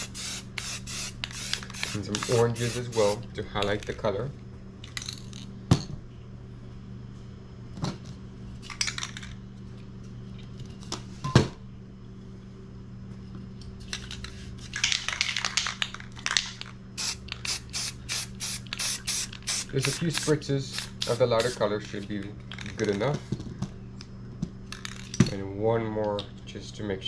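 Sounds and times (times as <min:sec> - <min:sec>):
spray paint can hissing: 0:00.0 - 0:03.2, 0:17.0 - 0:21.6
steady low hum: 0:00.0 - 0:27.0.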